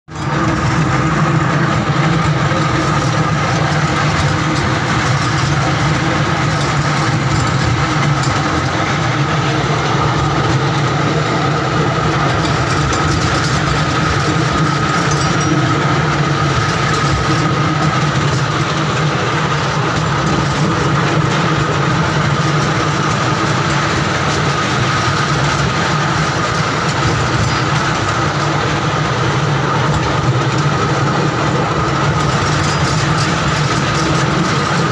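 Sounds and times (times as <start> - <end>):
constant high whine: 0.1 - 34.9
ride train motor hum: 0.1 - 34.9.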